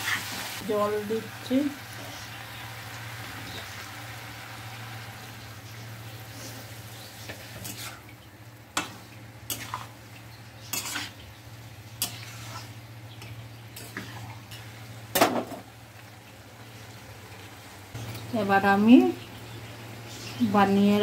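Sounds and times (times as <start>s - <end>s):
food sizzling faintly: 0.0s - 21.0s
metal spatula scraping a wok: 6.4s - 8.1s, 8.8s - 10.0s, 10.6s - 11.2s, 12.0s - 14.7s.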